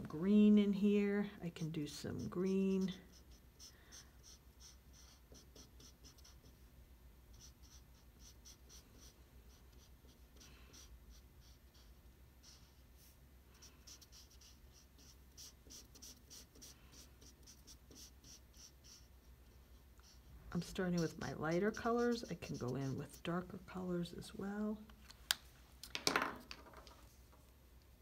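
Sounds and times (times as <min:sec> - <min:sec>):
marker scratching on paper: 0:01.7 - 0:06.7, 0:07.3 - 0:23.8.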